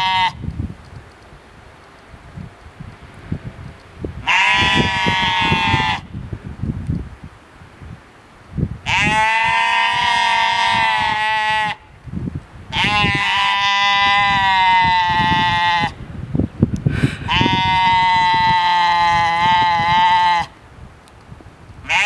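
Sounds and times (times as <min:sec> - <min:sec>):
sheep bleating: 0:00.0 - 0:00.4, 0:04.3 - 0:06.0, 0:08.9 - 0:11.8, 0:12.7 - 0:16.0, 0:17.3 - 0:20.5.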